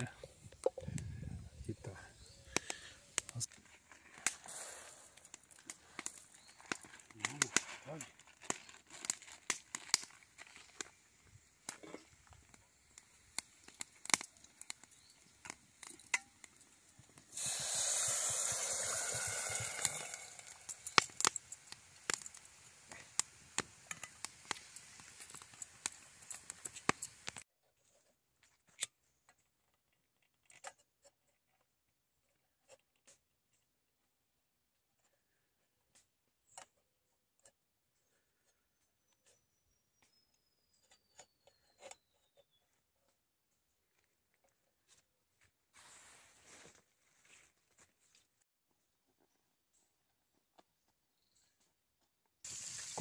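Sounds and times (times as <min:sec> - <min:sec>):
campfire crackling: 0:00.0 - 0:27.5, 0:52.4 - 0:53.0
liquid sizzling in hot pot: 0:04.2 - 0:06.8, 0:13.0 - 0:27.5, 0:52.4 - 0:53.0.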